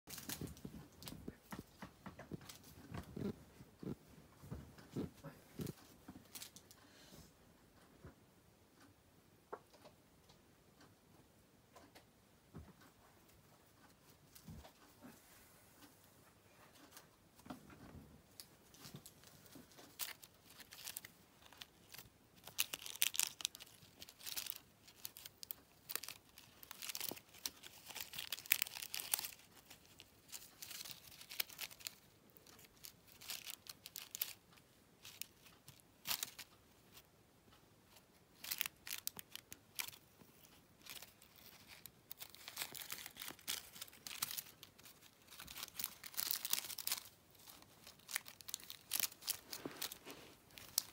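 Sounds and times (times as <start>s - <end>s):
foil ball crinkling: 0.1s - 3.4s, 18.7s - 37.1s, 37.9s - 50.9s.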